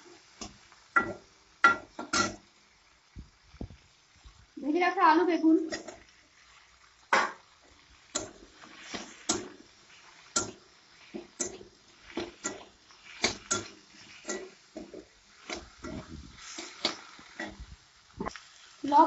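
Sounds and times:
metal spatula scraping a pan: 5.7s - 6.9s, 8.0s - 17.6s.

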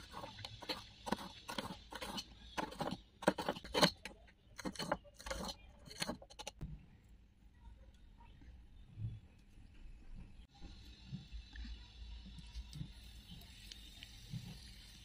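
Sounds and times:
knife slicing onion: 0.0s - 6.6s.

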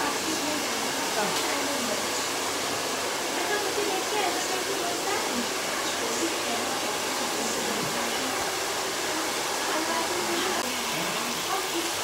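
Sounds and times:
faint voices: 0.0s - 12.0s
hair dryer blowing: 0.0s - 12.0s.

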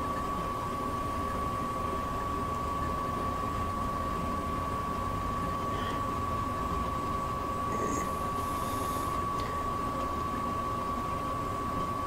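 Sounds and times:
soldering gun humming: 2.0s - 11.0s.

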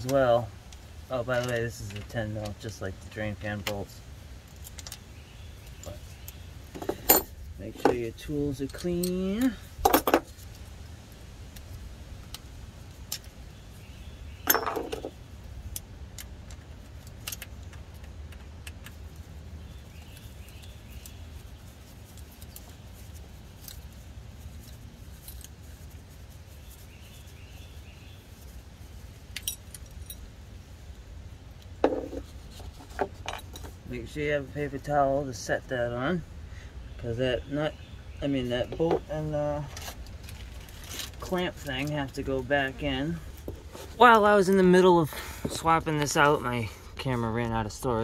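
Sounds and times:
metallic clatter: 14.4s - 15.1s.

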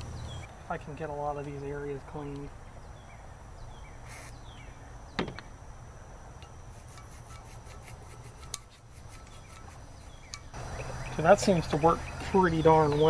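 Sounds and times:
single knock: 5.2s - 5.5s
toothbrush scrubbing metal: 6.7s - 10.5s.

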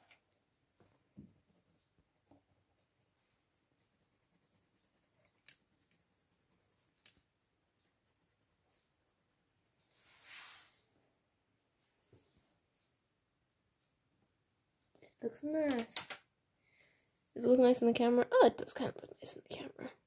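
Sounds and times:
pencil scratching on paper: 0.9s - 10.8s.

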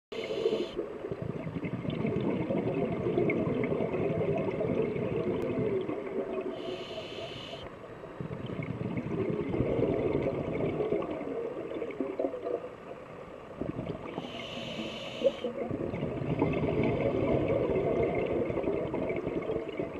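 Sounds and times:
regulator inhalation hiss: 0.1s - 0.8s, 6.5s - 7.7s, 14.2s - 15.6s
exhaled air bubbling: 0.1s - 19.9s.

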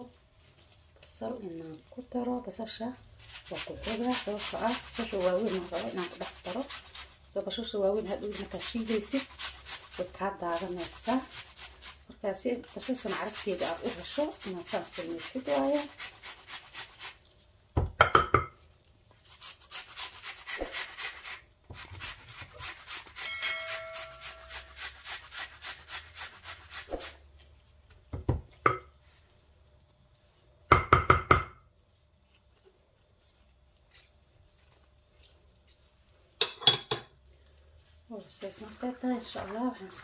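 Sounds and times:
onion rasped on metal grater: 3.2s - 17.2s, 19.3s - 27.2s.

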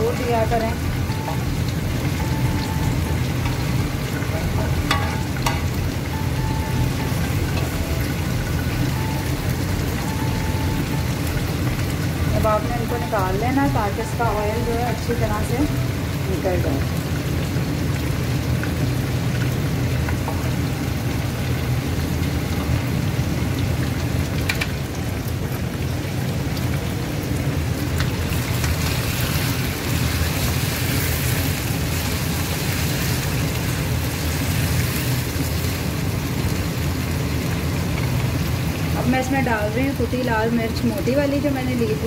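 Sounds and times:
low hum: 0.0s - 23.4s
oil sizzling in a wok: 0.0s - 42.0s.

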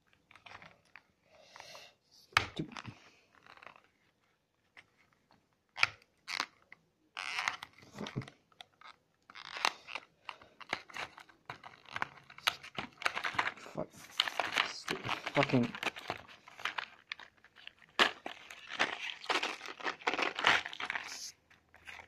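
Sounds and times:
candy box packaging tearing: 5.7s - 22.0s.

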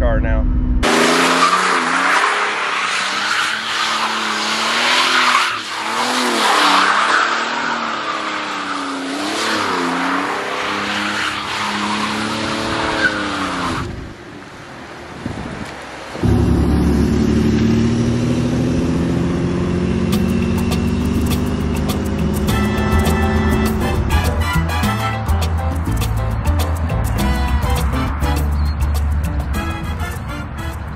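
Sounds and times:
car engine revving: 0.5s - 14.0s, 16.1s - 24.8s
tires squealing on wet asphalt: 0.8s - 14.0s.

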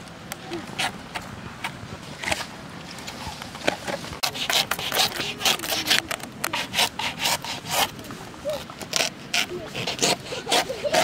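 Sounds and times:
blade sawing banana trunk: 4.2s - 11.0s.

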